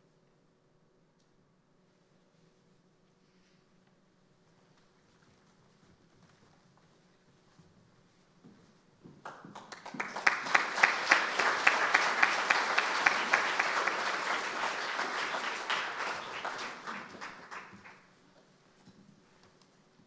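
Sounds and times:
audience applauding: 0:09.2 - 0:18.0
loud single claps: 0:09.3 - 0:18.0.

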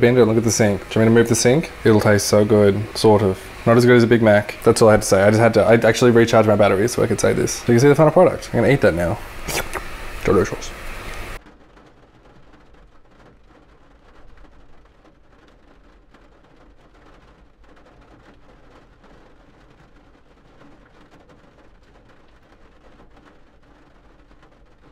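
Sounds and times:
low hum: 0:00.0 - 0:11.4.

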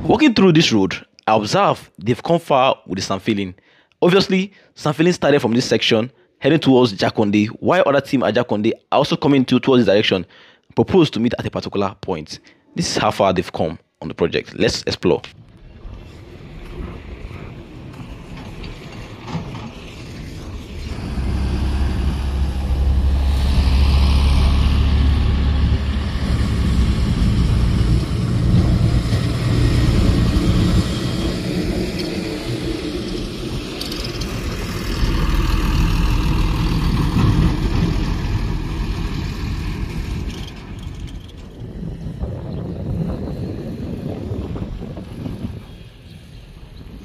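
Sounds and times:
dump truck engines rumbling: 0:15.7 - 0:47.0.

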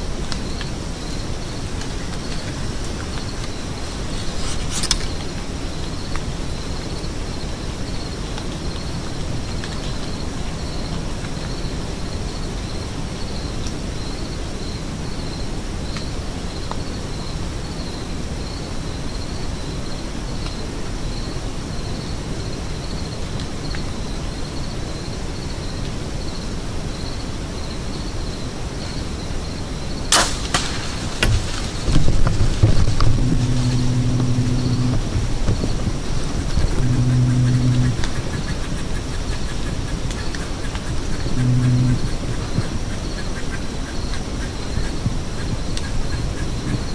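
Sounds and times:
steady low hiss: 0:00.0 - 0:46.9
bow string snapping: 0:30.1 - 0:31.7.

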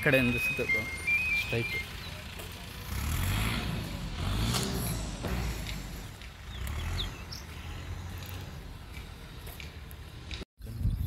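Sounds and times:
bird chirps: 0:00.0 - 0:02.4, 0:06.0 - 0:08.5
low roadside rumble: 0:00.0 - 0:11.0.

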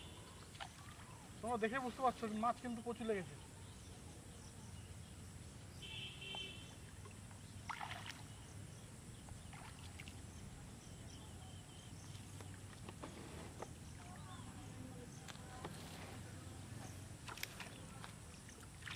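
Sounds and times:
water splashes: 0:00.0 - 0:02.4, 0:06.2 - 0:08.5, 0:09.4 - 0:10.6, 0:16.9 - 0:18.9
pond water sloshing: 0:00.0 - 0:03.4, 0:05.8 - 0:18.9.

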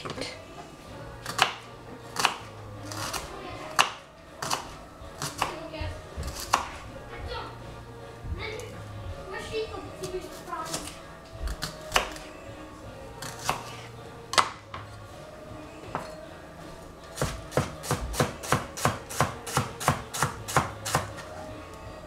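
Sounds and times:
knife chopping on cutting board: 0:01.2 - 0:01.6, 0:02.2 - 0:05.6, 0:06.2 - 0:06.8, 0:10.7 - 0:12.2, 0:13.2 - 0:14.9, 0:17.2 - 0:21.2.

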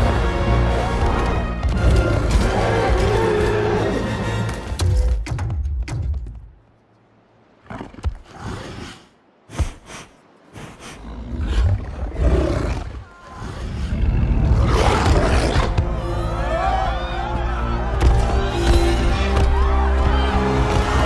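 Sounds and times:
wolf growling and roaring: 0:11.0 - 0:15.8.

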